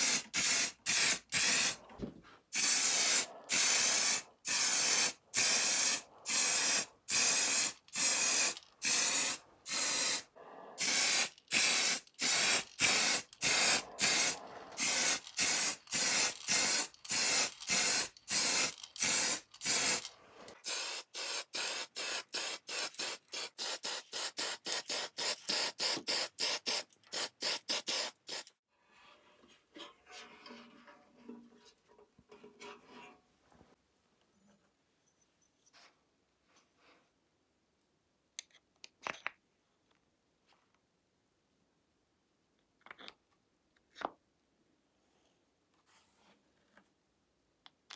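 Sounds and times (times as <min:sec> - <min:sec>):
spray paint can hissing bursts: 0:00.0 - 0:01.8, 0:02.5 - 0:28.5.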